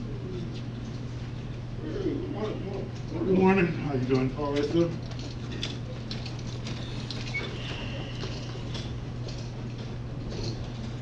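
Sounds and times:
steady low hum: 0.0s - 11.0s
faint clicks and rustles: 2.3s - 11.0s.

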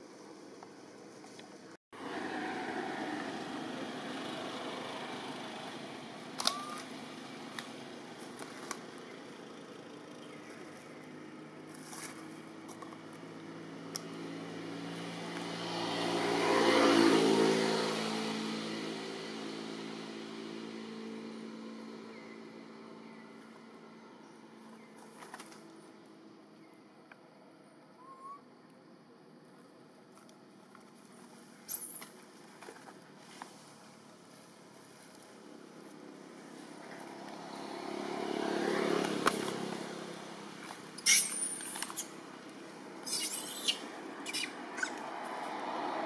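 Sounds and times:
vehicle engine passing by: 2.0s - 24.9s, 33.2s - 46.0s.

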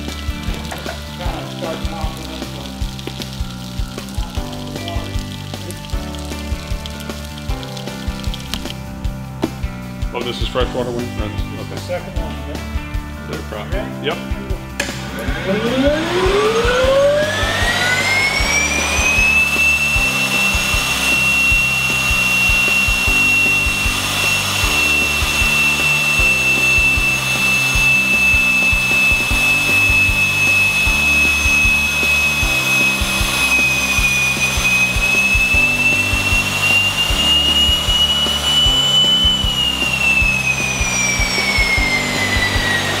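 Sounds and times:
turboprop engine starter whine: 14.8s - 43.0s.

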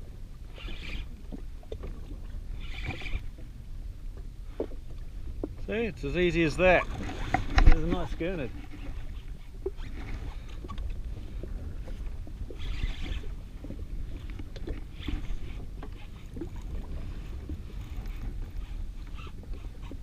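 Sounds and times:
waves lapping against a hull: 0.0s - 20.0s
wind rumbling on microphone: 0.0s - 20.0s.

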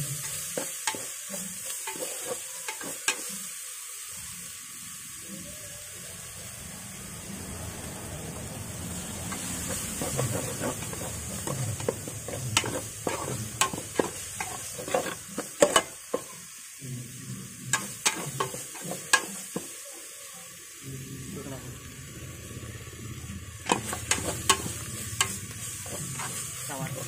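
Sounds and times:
steady sizzle: 0.0s - 27.0s
metal spatula scraping a pot: 0.1s - 3.5s, 9.3s - 16.4s, 17.7s - 19.6s, 23.7s - 27.0s.

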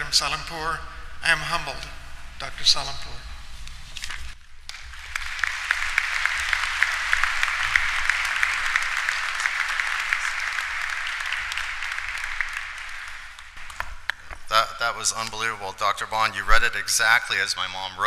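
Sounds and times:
audience applauding: 4.7s - 14.3s.

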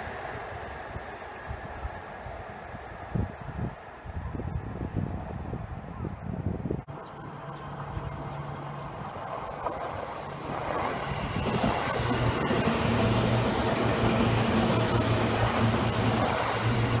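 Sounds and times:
wheels rushing on rails: 6.8s - 17.0s
electric train passing: 6.9s - 17.0s.

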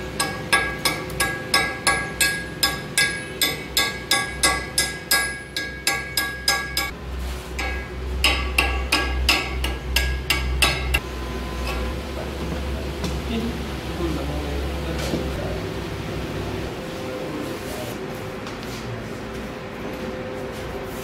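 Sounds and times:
hammer striking chisel on metal: 0.0s - 11.0s.

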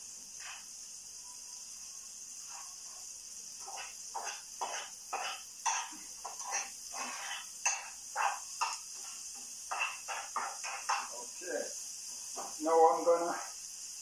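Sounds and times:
food sizzling in a frying pan: 0.0s - 14.0s
cooking utensil scraping and knocking: 3.6s - 11.2s.

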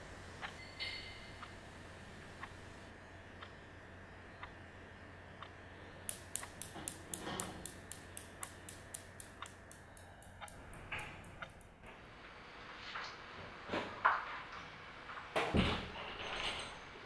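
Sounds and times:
faint steady tick: 2.4s - 2.6s, 3.4s - 3.6s, 4.4s - 4.6s, 5.4s - 11.7s
steel balls clacking: 6.1s - 11.8s.

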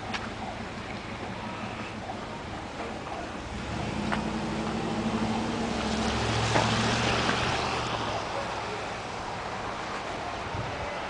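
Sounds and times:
vehicle passing by: 3.4s - 10.0s.

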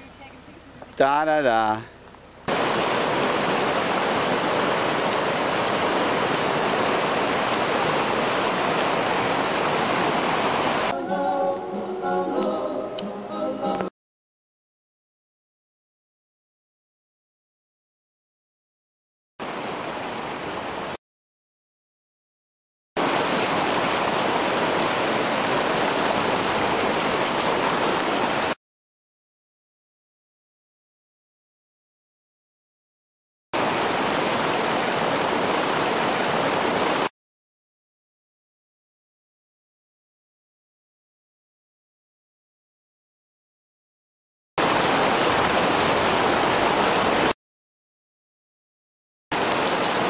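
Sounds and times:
river rapids rushing: 2.5s - 10.9s, 23.0s - 28.6s, 33.6s - 37.1s, 44.6s - 47.3s
music: 10.9s - 13.9s.

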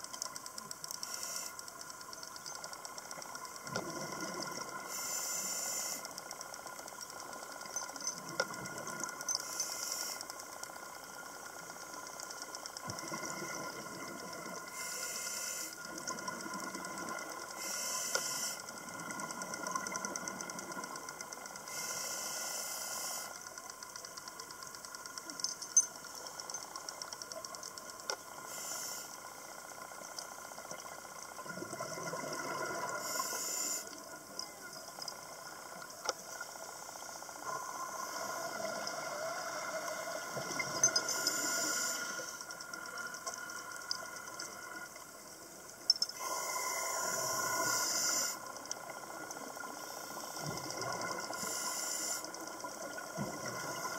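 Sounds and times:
faint steady whine: 0.0s - 53.9s
regulator breathing hiss: 0.9s - 1.9s, 4.8s - 6.6s, 9.4s - 10.9s, 14.6s - 16.0s, 17.4s - 19.0s, 21.6s - 23.6s, 28.4s - 29.8s, 32.9s - 34.1s, 36.7s - 44.4s, 46.1s - 48.7s, 49.7s - 52.8s.

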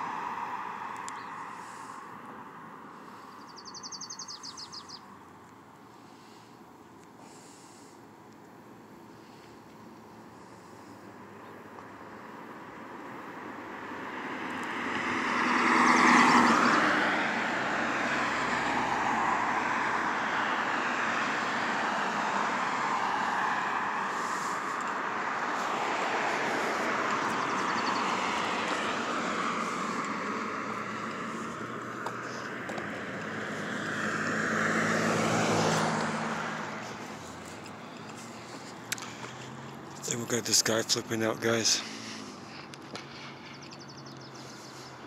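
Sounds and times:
aircraft flying over: 14.1s - 41.0s.

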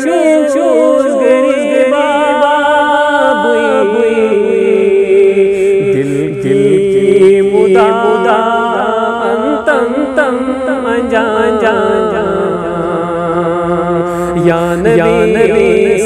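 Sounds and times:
man singing devotional song: 0.0s - 16.0s
held drone: 5.4s - 6.4s, 9.7s - 16.0s.

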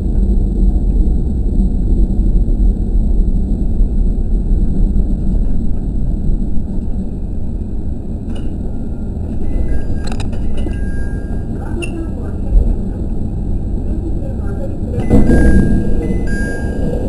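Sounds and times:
diesel engine rumble: 0.0s - 17.0s
train wheels on track: 0.0s - 17.0s.

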